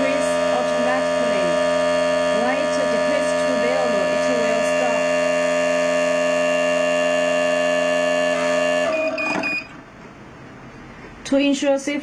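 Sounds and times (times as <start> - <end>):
mixing machine motor humming: 0.0 - 10.2
short beeps: 8.3 - 9.8.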